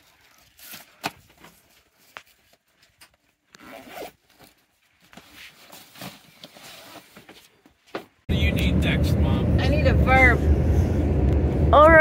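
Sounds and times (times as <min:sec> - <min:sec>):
bags rustling and scraping: 0:00.0 - 0:07.9.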